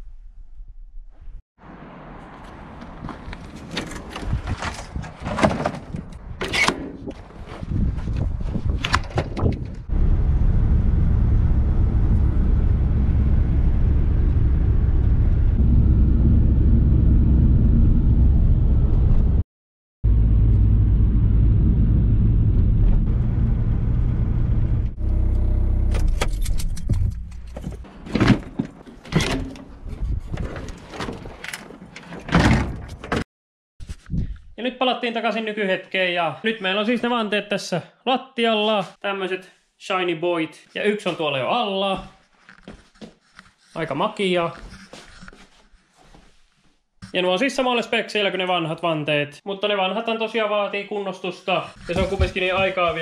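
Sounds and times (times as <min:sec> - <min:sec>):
engine and road rumble: 0:01.6 - 0:19.4, 0:20.0 - 0:30.8
metal knocks and clanks: 0:26.1 - 0:33.2.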